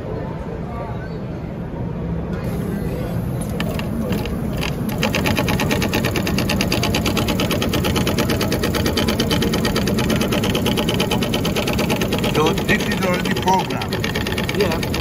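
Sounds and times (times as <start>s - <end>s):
sewing machine stitching: 3.5s - 15.0s.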